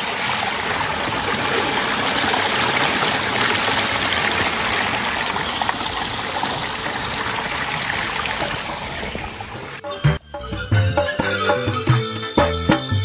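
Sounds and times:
stream trickling over rocks: 0.0s - 9.8s.

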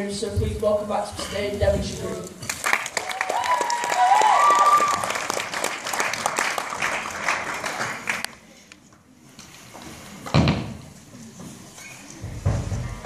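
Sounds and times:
audience applause: 2.5s - 8.3s.

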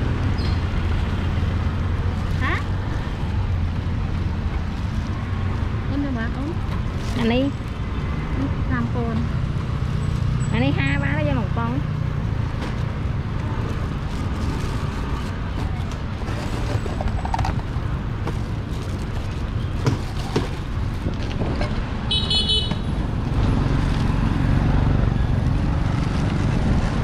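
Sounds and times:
street traffic rumble: 0.0s - 27.0s
vehicle horn beep: 22.1s - 22.8s.

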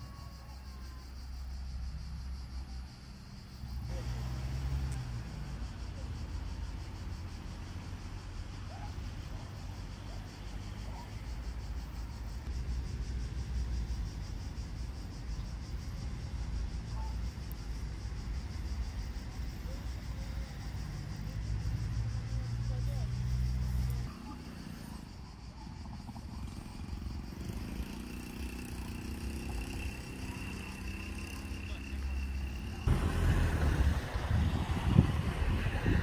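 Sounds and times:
insects buzzing: 0.0s - 36.0s.

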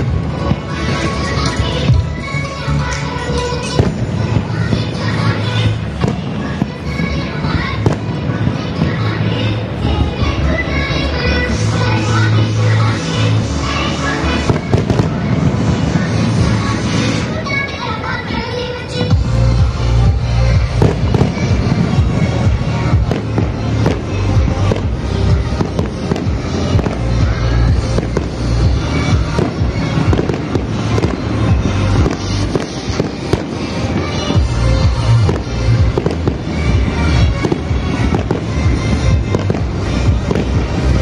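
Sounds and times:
loud music with heavy bass: 0.0s - 17.7s, 19.0s - 41.0s
fireworks bangs: 0.0s - 41.0s.

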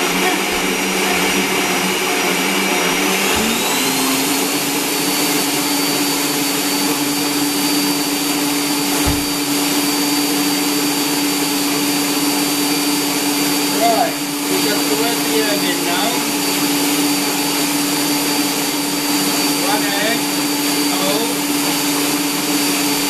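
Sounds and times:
electric stand mixer running: 0.0s - 23.0s
dull knock: 9.0s - 9.4s.

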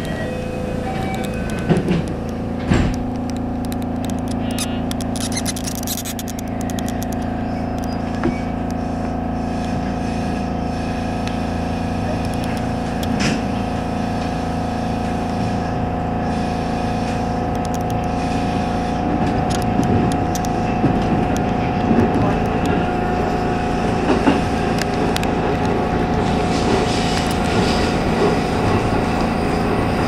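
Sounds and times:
rail clicks: 0.0s - 8.8s, 12.1s - 13.5s, 17.1s - 18.2s, 18.9s - 30.0s
wheel and rail noise: 0.0s - 30.0s.

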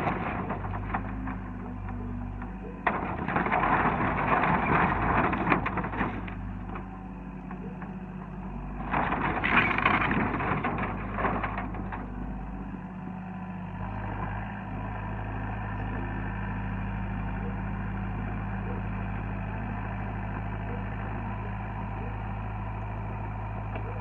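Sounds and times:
metal crunching: 0.0s - 12.8s
wood cracking and splintering: 0.0s - 12.8s
excavator diesel engine: 0.0s - 24.0s.

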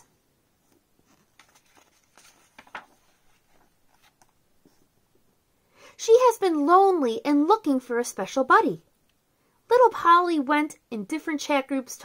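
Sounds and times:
paper page turning: 0.6s - 4.4s.

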